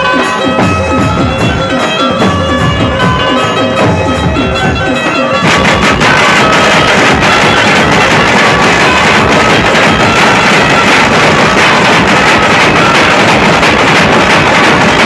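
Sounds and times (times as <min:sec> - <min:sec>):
band music through speakers: 0:00.0 - 0:15.0
heavy drum beats: 0:00.0 - 0:15.0.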